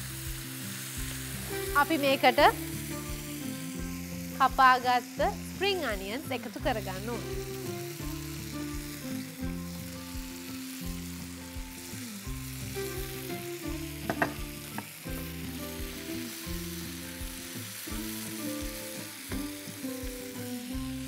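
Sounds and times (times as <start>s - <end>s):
food sizzling in a frying pan: 0.0s - 21.0s
soft background music: 0.0s - 21.0s.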